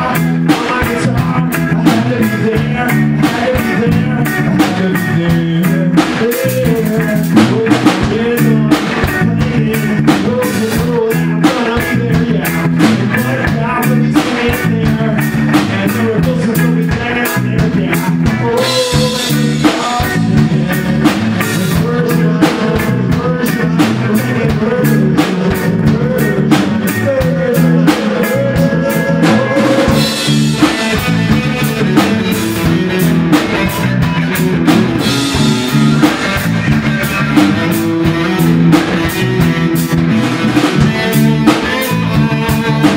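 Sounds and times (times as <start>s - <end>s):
man singing into microphone: 0.0s - 39.6s, 40.6s - 42.9s
bass guitar: 0.0s - 42.9s
drum kit beat: 0.0s - 42.9s
electric guitar: 0.0s - 42.9s.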